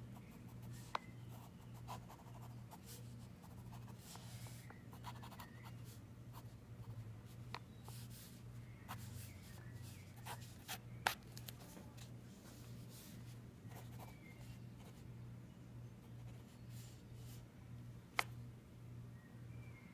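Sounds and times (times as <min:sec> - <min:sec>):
steady low hum: 0:00.0 - 0:19.9
pen scratching on paper: 0:01.3 - 0:04.4, 0:05.0 - 0:05.8.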